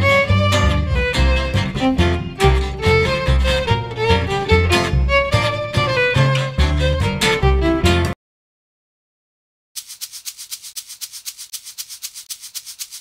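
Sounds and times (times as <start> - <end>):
fiddle tune: 0.0 - 8.2.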